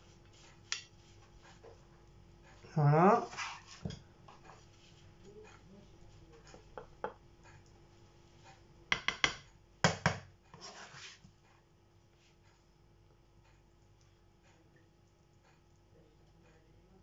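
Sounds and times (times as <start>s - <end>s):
spoon knocking on plates: 6.5s - 7.2s, 8.9s - 10.3s.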